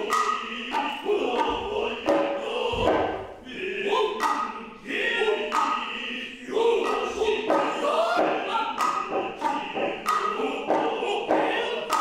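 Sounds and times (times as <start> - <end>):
sharp drum strikes: 0.0 - 3.4
chorus chanting in unison: 0.0 - 12.0.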